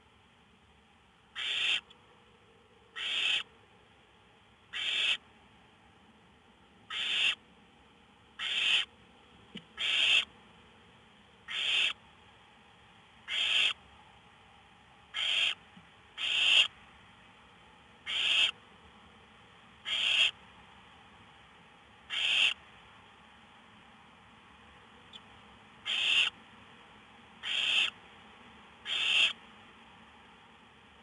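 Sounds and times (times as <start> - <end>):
owl chicks hissing begging calls: 1.4 - 1.8, 2.9 - 3.5, 4.7 - 5.2, 6.9 - 7.4, 8.4 - 8.9, 9.8 - 10.3, 11.5 - 12.0, 13.3 - 13.8, 15.1 - 15.6, 16.2 - 16.7, 18.1 - 18.6, 19.8 - 20.4, 22.1 - 22.6, 25.8 - 26.4, 27.4 - 28.0, 28.8 - 29.4.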